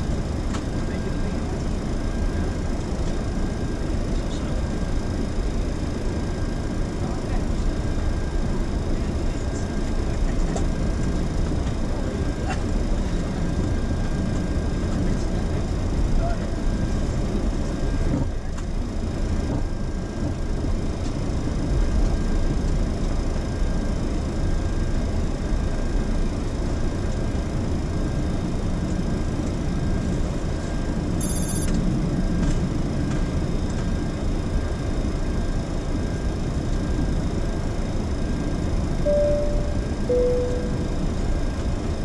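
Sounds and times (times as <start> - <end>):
idling jet engines rumble and hiss: 0.0 - 42.0
faint high whines: 31.2 - 31.8, 39.0 - 41.7.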